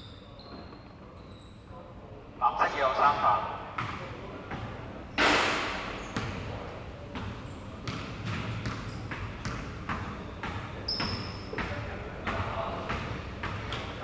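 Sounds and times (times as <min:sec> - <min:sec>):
basketball bouncing on wooden floor: 0:07.1 - 0:13.9.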